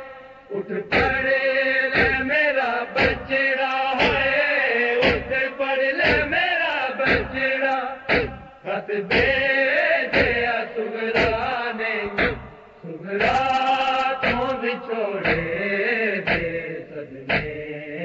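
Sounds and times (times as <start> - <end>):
male group chanting: 0.0 - 18.0
hands beating on chests: 0.9 - 1.2, 2.0 - 2.3, 3.0 - 3.3, 4.0 - 4.4, 5.0 - 5.4, 6.0 - 6.4, 7.1 - 7.4, 8.1 - 8.4, 9.1 - 9.5, 10.1 - 10.5, 11.2 - 12.5, 13.2 - 14.6, 15.2 - 15.5, 16.3 - 16.6, 17.3 - 17.6.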